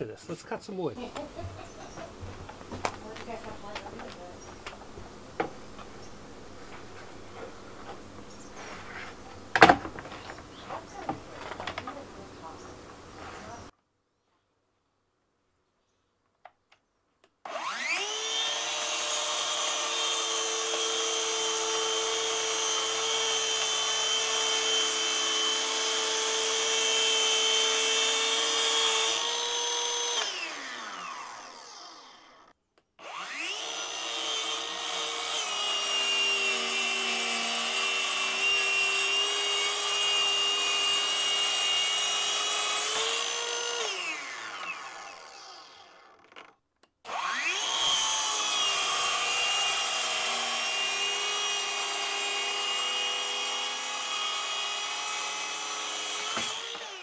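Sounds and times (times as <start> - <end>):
track saw cutting plywood: 17.5 - 57.0.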